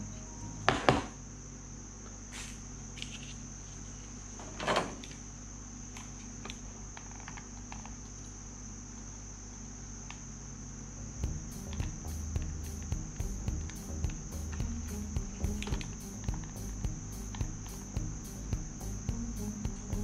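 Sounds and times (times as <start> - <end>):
steady high-pitched tone: 11.2 - 20.0.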